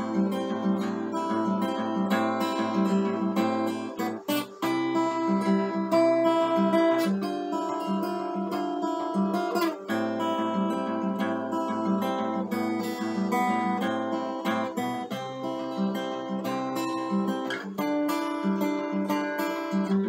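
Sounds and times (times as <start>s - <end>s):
acoustic guitar chords: 0.0s - 20.0s.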